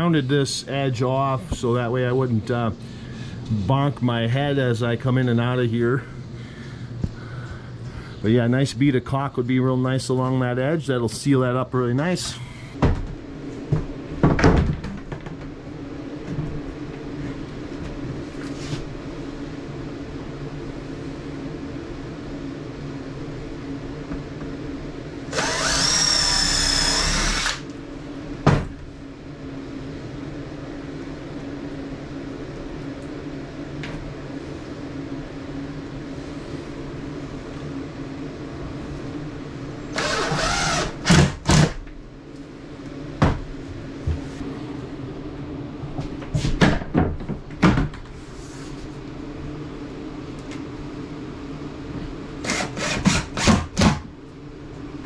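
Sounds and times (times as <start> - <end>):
cordless drill whining: 25.3 - 27.6, 39.9 - 41.3, 52.4 - 53.5.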